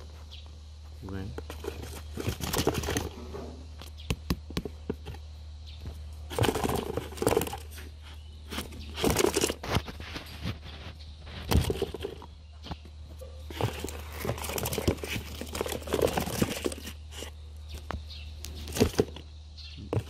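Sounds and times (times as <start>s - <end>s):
cardboard box scraping and clicking: 1.4s - 3.3s, 6.3s - 12.3s, 13.5s - 17.9s, 18.5s - 19.3s.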